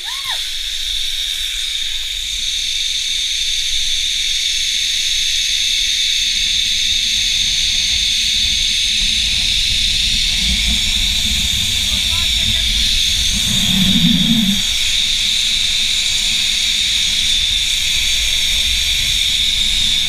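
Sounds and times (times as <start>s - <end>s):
zipline pulleys hissing on cable: 0.0s - 15.2s
wind rumble on microphone: 7.1s - 15.1s.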